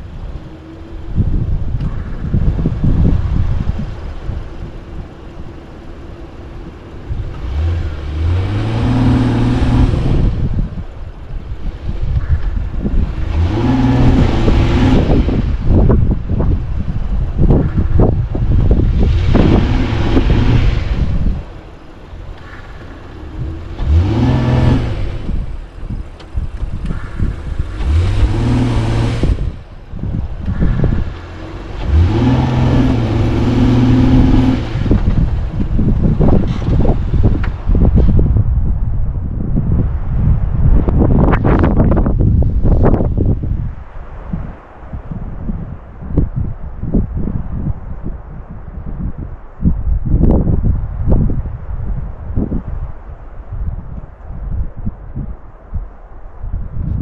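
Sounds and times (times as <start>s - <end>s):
wind buffeting microphone: 0.0s - 57.0s
car engine revving hard: 7.1s - 10.6s, 13.0s - 15.8s, 18.6s - 21.3s, 22.4s - 25.6s, 27.5s - 29.6s, 30.5s - 37.4s.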